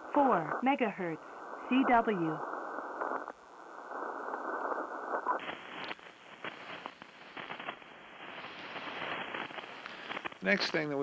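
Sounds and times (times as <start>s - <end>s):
radio static hiss: 0.0s - 11.0s.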